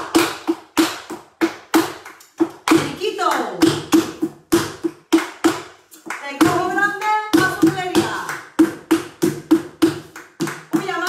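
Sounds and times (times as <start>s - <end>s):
rhythmic hand-clapping: 0.0s - 11.0s.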